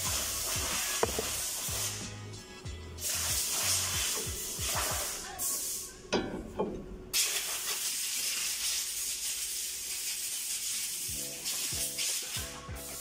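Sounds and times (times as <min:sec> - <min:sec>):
steady hiss: 0:00.0 - 0:02.4, 0:03.0 - 0:06.0, 0:07.1 - 0:13.0
background music: 0:00.0 - 0:07.1, 0:11.1 - 0:13.0.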